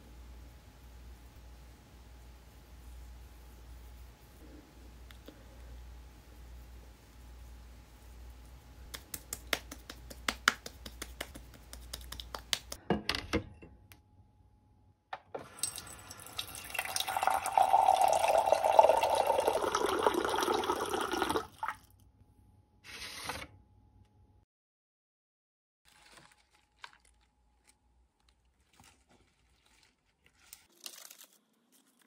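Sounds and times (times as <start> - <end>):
water running from a tap: 15.4 - 21.8.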